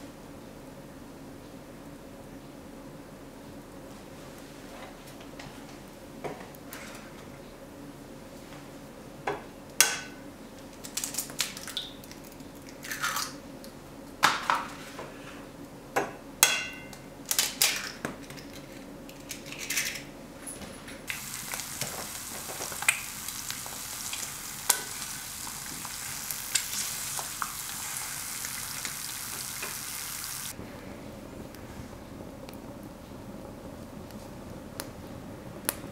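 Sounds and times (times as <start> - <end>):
eggs cracking against pan: 21.1 - 30.6
eggs sizzling in pan: 21.1 - 30.6.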